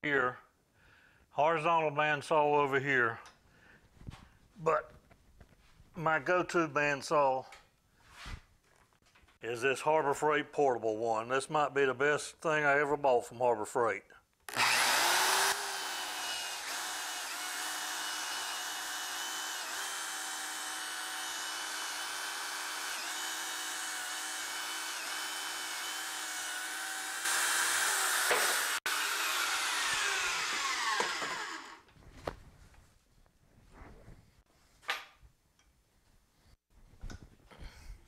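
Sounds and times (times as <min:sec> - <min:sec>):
bandsaw motor cutting metal: 0:14.5 - 0:31.9
bandsaw winding down: 0:14.5 - 0:31.9.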